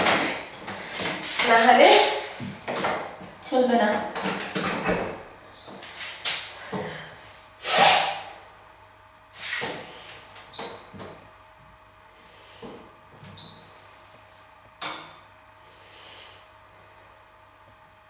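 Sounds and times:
washing machine knocks and clatters: 3.8s - 5.3s
short electronic beeps: 5.6s - 6.0s.

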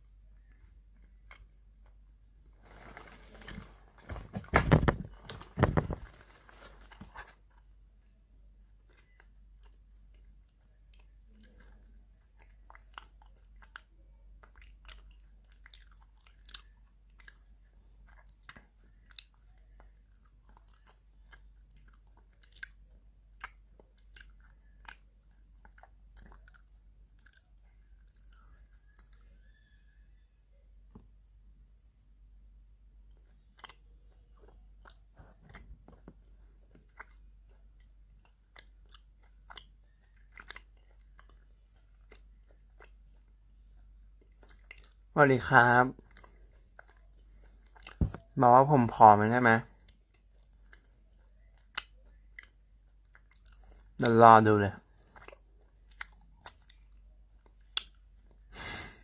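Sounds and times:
rustling and handling noise: 1.9s - 7.8s, 34.5s - 37.3s, 45.9s - 49.0s
heavy thumps: 4.0s - 6.3s
person chewing crunchy snack: 8.9s - 29.2s, 33.1s - 45.1s, 45.9s - 48.4s, 49.7s - 54.0s, 54.9s - 59.0s.

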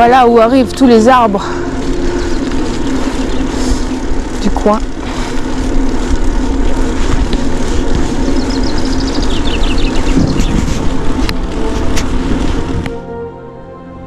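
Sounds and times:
wind and riding noise: 0.0s - 13.5s
constant low hum: 0.0s - 14.0s.

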